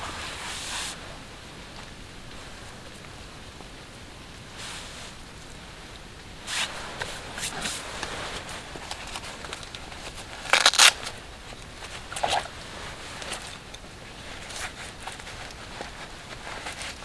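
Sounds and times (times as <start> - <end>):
scrape: 0.0 - 1.1, 4.6 - 5.2, 6.4 - 9.4, 14.2 - 17.0
jacket rustling: 0.0 - 2.8, 6.4 - 17.0.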